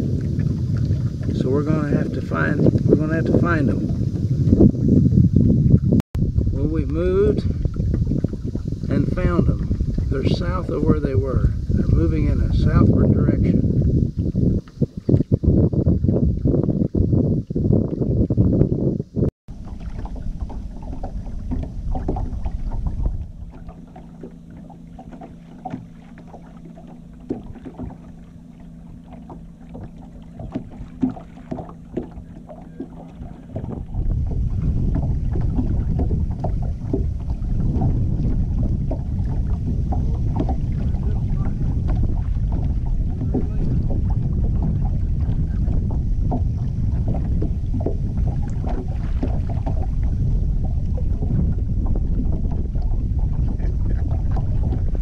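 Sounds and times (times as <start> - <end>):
steady low hum: 0.0 - 55.0
water slapping against hull: 0.0 - 55.0
wind buffeting microphone: 0.0 - 55.0
small ticks and knocks: 19.9 - 28.2, 29.1 - 33.8, 34.9 - 37.9.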